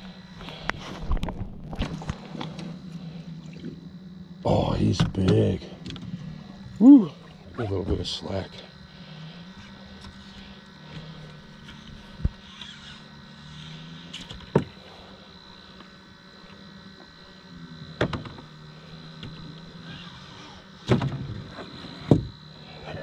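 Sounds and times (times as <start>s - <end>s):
low steady hum: 0.0s - 23.0s
knocks inside boat: 14.4s - 14.8s, 18.0s - 18.4s, 20.8s - 22.3s.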